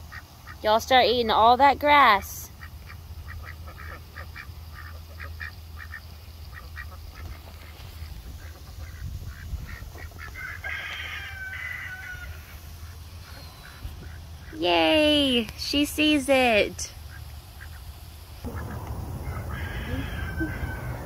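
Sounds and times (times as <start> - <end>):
ducks quacking: 2.6 - 10.6, 17.0 - 21.0.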